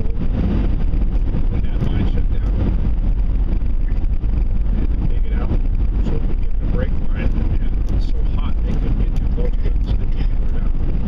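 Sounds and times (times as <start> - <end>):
vehicle engine and road rumble: 0.0 - 11.0.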